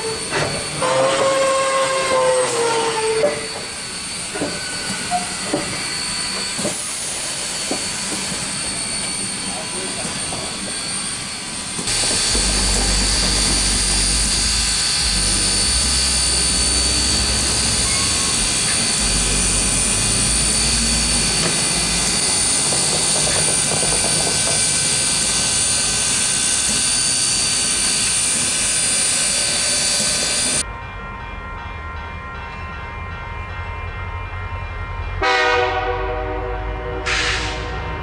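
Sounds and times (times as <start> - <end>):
low rumble: 11.9 - 22.6.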